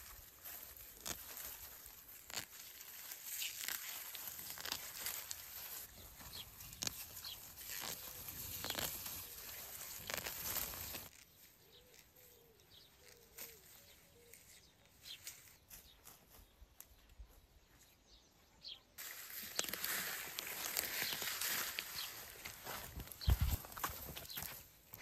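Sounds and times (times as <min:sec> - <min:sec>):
leaves rustling: 0:00.0 - 0:16.2, 0:19.0 - 0:25.0
faint outdoor background: 0:00.0 - 0:25.0
stalks tearing and snapping: 0:00.6 - 0:05.8, 0:06.6 - 0:11.2.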